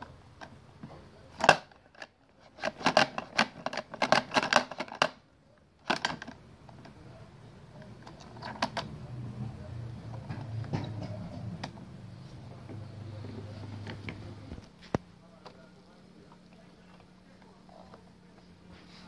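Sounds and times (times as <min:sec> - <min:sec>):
plastic toys clicking: 0:01.3 - 0:05.2, 0:05.8 - 0:07.0, 0:08.0 - 0:09.0.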